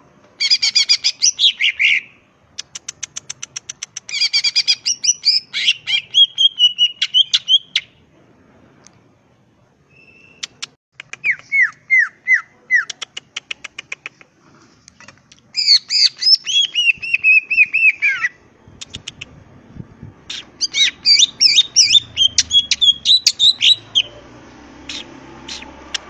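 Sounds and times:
bird singing: 0:04.2 - 0:08.0, 0:09.9 - 0:10.6, 0:15.6 - 0:18.5, 0:20.3 - 0:26.0.

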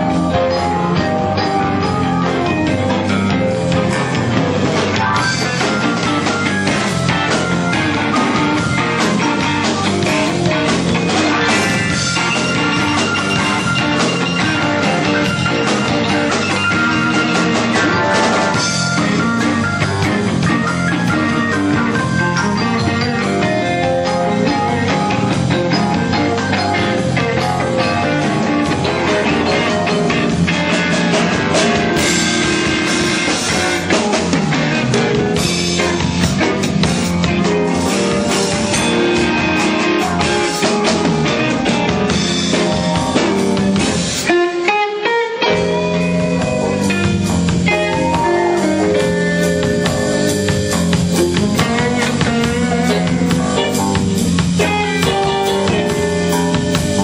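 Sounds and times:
drum kit: 0:00.0 - 0:57.0
electric guitar: 0:00.0 - 0:57.0.

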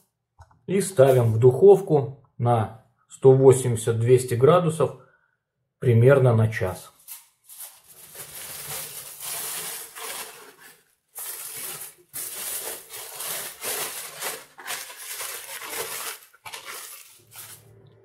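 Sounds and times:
aluminium foil crinkling: 0:07.0 - 0:17.8.

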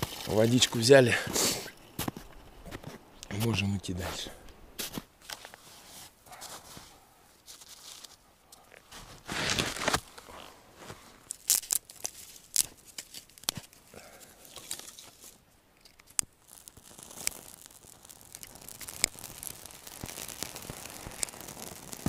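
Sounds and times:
footsteps crunching through snow: 0:00.0 - 0:03.7, 0:04.8 - 0:08.2, 0:08.8 - 0:11.4.

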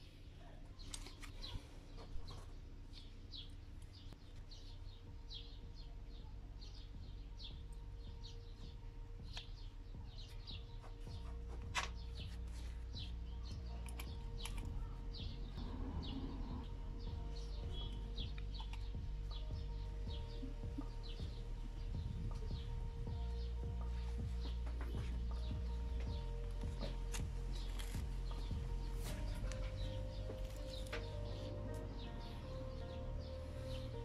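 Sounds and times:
small birds chirping: 0:00.0 - 0:34.0
steady low hum: 0:00.0 - 0:34.0
metal valve parts clicking: 0:13.7 - 0:14.8.

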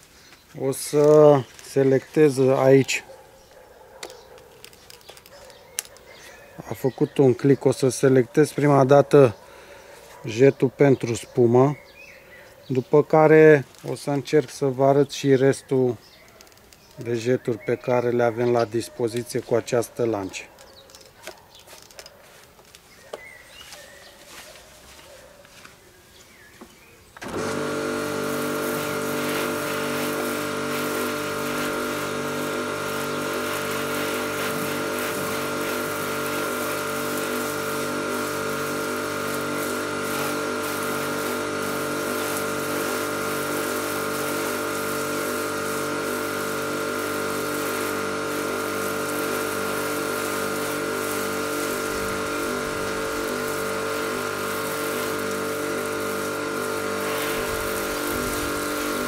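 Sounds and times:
pressure washer motor humming: 0:00.0 - 0:10.4, 0:27.1 - 0:59.0
water spraying hiss: 0:27.2 - 0:59.0.

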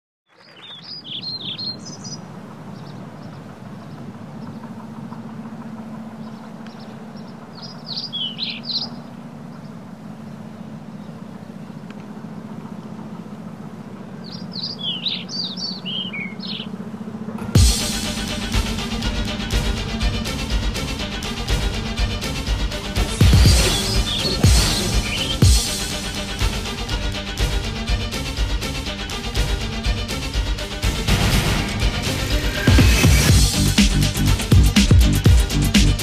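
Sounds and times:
small birds chirping: 0:00.3 - 0:17.2, 0:23.2 - 0:26.0
steady low hum: 0:01.7 - 0:36.0.

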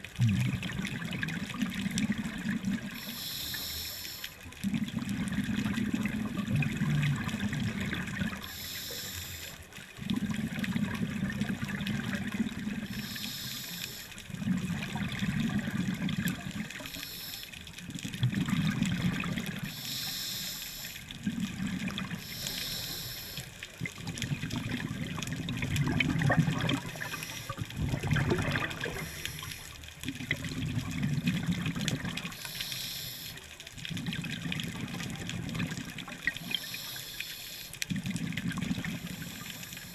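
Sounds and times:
exhaled air bubbling underwater: 0:00.0 - 0:39.9
regulator inhale hiss: 0:03.0 - 0:04.4, 0:08.4 - 0:09.6, 0:12.8 - 0:14.2, 0:16.8 - 0:17.6, 0:19.6 - 0:21.0, 0:22.2 - 0:23.5, 0:26.9 - 0:27.6, 0:28.8 - 0:29.8, 0:32.3 - 0:33.5, 0:36.4 - 0:37.8, 0:39.0 - 0:39.9.

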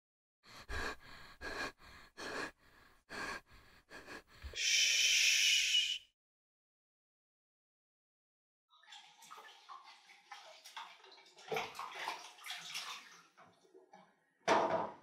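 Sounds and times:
person gasping for breath: 0:00.6 - 0:06.0.

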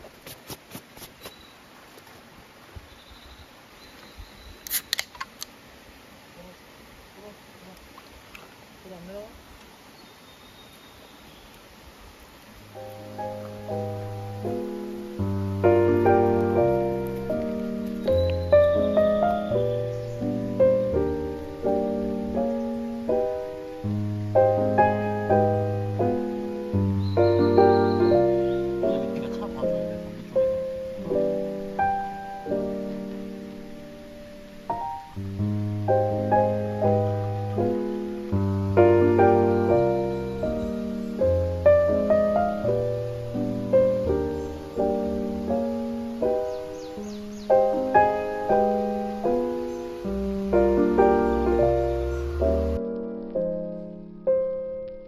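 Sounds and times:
camp gear clicks and taps: 0:04.7 - 0:05.5
piano music: 0:12.7 - 0:55.0.

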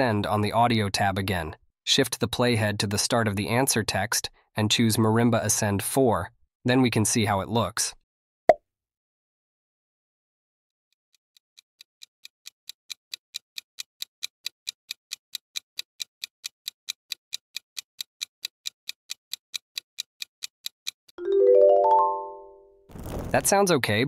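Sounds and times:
egg timer ticking: 0:11.2 - 0:21.2.

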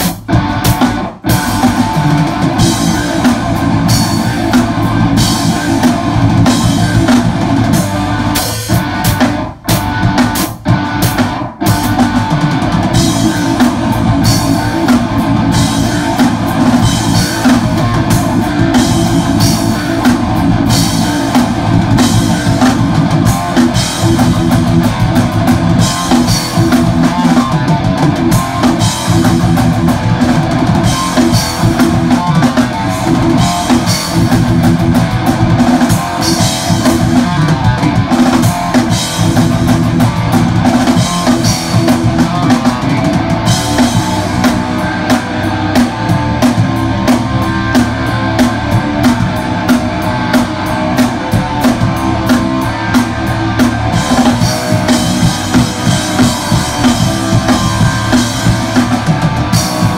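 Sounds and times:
bass guitar: 0:00.0 - 0:59.9
distorted electric guitar: 0:00.0 - 0:59.9
drum kit with heavy cymbals: 0:00.0 - 0:59.9.

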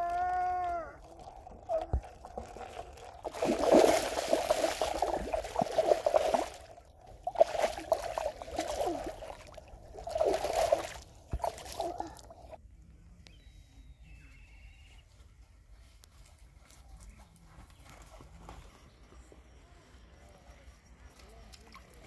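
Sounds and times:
fish splashing in water: 0:01.0 - 0:12.5.

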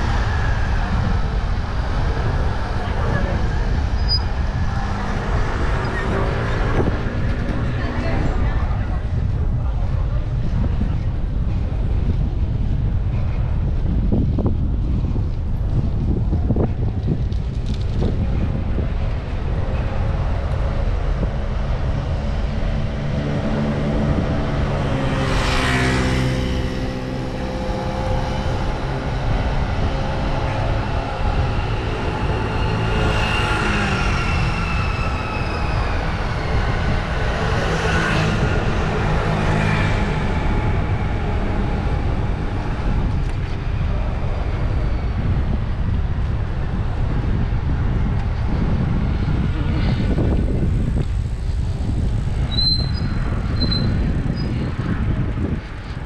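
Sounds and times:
passing vehicle engine droning: 0:00.0 - 0:10.7, 0:18.0 - 0:56.0
wind noise on microphone: 0:00.0 - 0:56.0.

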